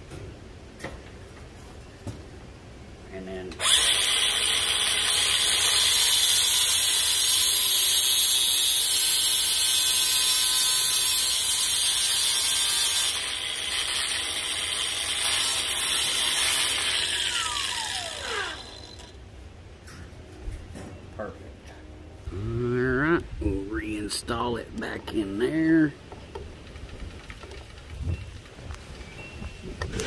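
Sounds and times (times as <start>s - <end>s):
angle grinder grinding steel: 3.6s - 19.2s.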